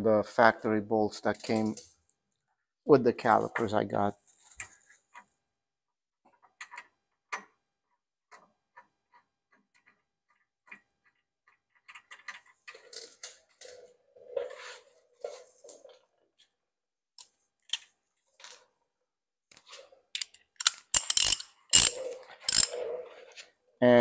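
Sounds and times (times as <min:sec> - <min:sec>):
metal clicks of hand tools and bolts: 0:20.1 - 0:22.8.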